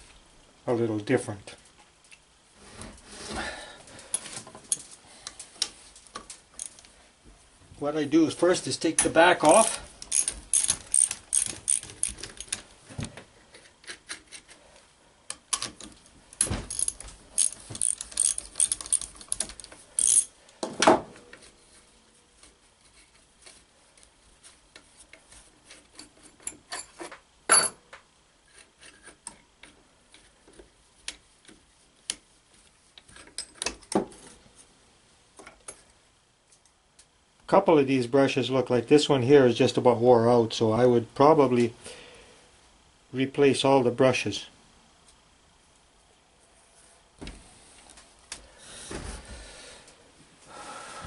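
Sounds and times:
metal clinks: 9.0s - 12.6s, 16.4s - 20.4s
ratchet clicking: 9.6s - 12.6s, 16.7s - 20.3s.

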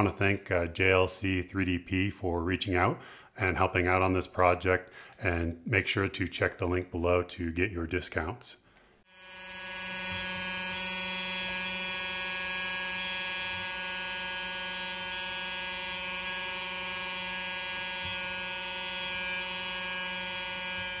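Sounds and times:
small electric motor whining: 9.1s - 21.0s.

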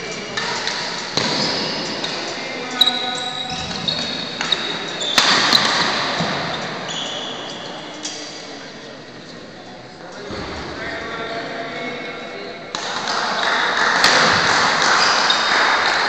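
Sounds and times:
shoes squeaking on floor: 0.0s - 8.2s
rackets striking shuttlecock: 0.3s - 2.2s, 4.4s - 6.4s.

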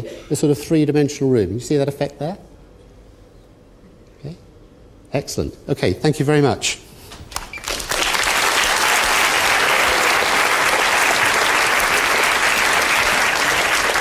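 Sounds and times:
children applauding: 7.4s - 14.0s.

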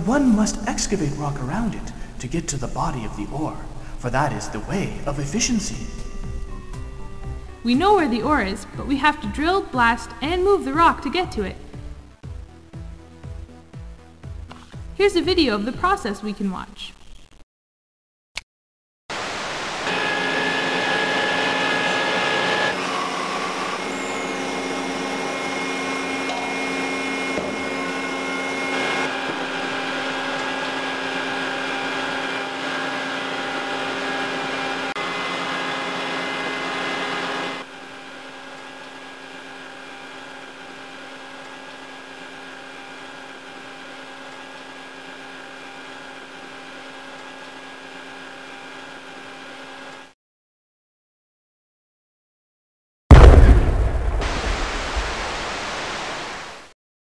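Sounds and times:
machinery whine: 0.0s - 12.1s, 19.1s - 47.2s
mining machinery noise: 19.1s - 44.7s.

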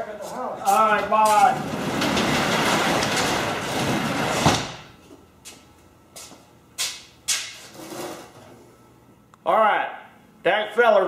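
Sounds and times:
garage door rolling down: 0.7s - 5.0s, 7.5s - 8.5s
garage door banging shut: 1.3s - 5.0s.

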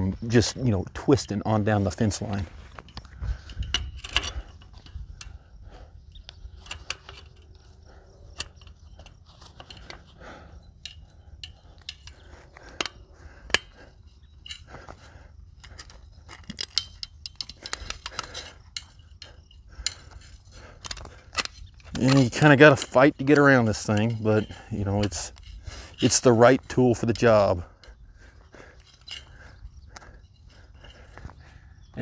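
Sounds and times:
metallic clicks and scrapes of wire: 0.4s - 5.5s, 6.1s - 28.0s, 28.7s - 31.4s
low wind rumble on microphone: 2.4s - 9.4s.

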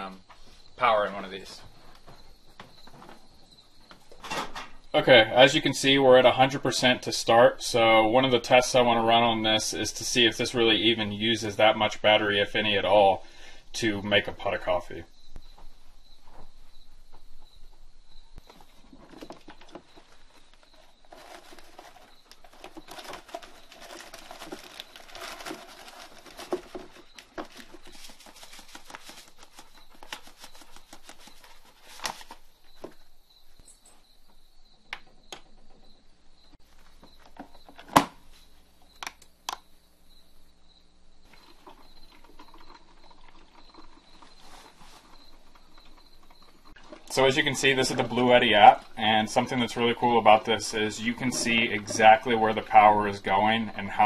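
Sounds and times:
paper bag crinkling: 18.9s - 32.5s
coffee grounds pouring: 21.1s - 32.3s, 41.3s - 54.0s.

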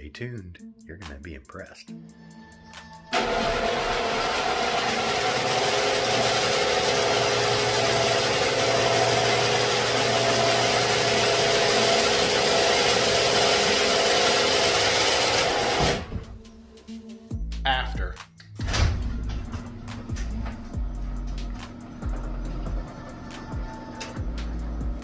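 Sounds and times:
garage door opener grinding: 3.1s - 16.2s.

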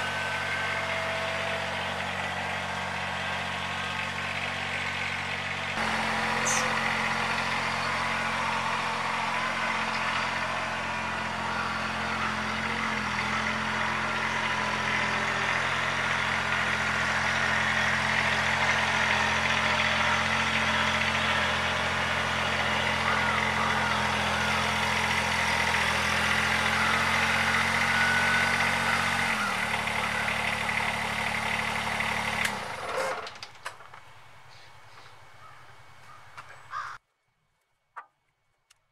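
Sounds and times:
tractor diesel engine running: 0.0s - 37.0s.

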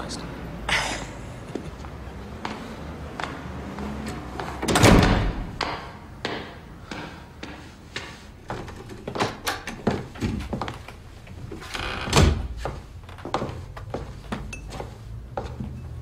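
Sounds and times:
wooden door slamming shut: 4.6s - 5.8s, 11.8s - 12.6s.

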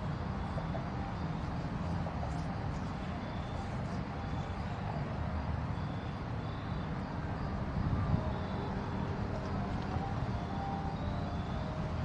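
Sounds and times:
locomotive engine rumbling: 7.8s - 12.0s.

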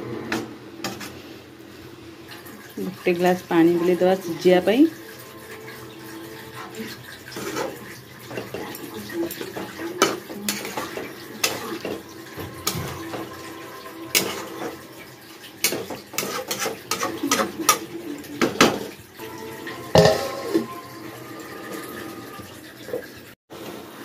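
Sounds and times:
steel spatula scraping pan: 0.3s - 1.2s, 5.1s - 18.6s, 19.8s - 22.4s.

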